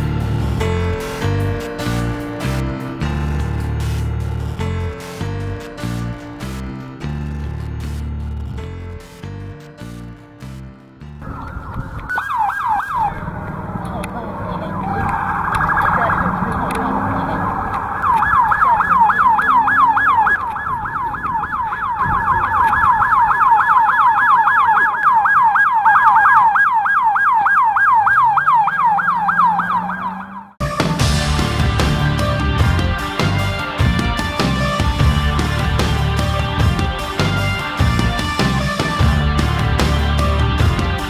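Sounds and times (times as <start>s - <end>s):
emergency vehicle siren: 11.2s - 41.0s.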